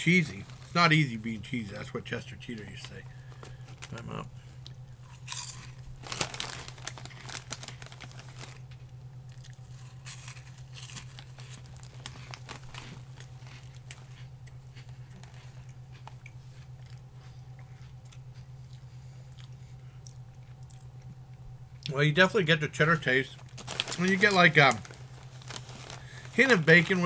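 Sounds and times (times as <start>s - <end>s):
foil snack bag crinkling: 0.0s - 16.6s, 23.0s - 27.0s
steady low hum: 0.0s - 27.0s
chewing crunchy snacks: 2.4s - 22.0s, 23.3s - 27.0s.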